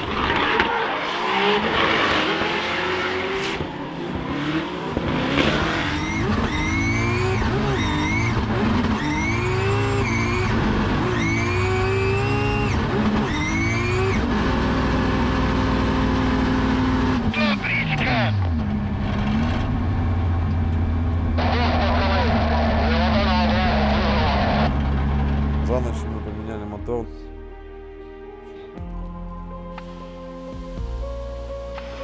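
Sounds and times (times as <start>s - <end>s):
car engine revving: 0.0s - 26.5s
tyres squealing and skidding: 5.4s - 14.3s.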